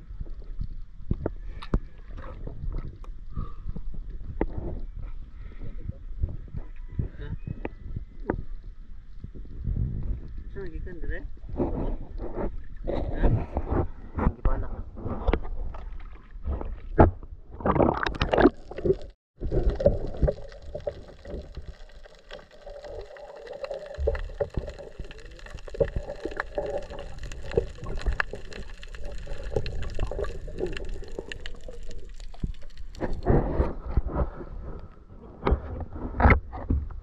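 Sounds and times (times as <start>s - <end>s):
small underwater clicks: 0.4s - 3.5s, 17.7s - 33.4s
water splashing against hull: 15.5s - 34.6s
muffled underwater gurgling: 17.7s - 34.7s.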